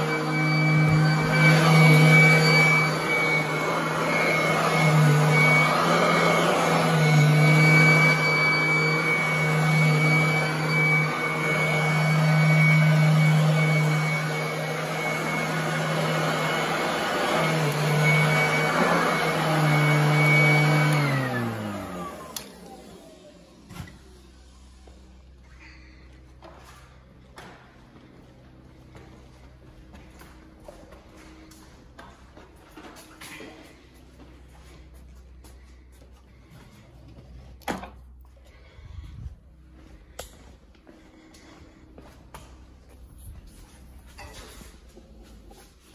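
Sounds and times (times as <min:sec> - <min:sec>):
vacuum motor spinning down: 0:00.0 - 0:25.2
vacuum cleaner motor humming: 0:00.0 - 0:25.5.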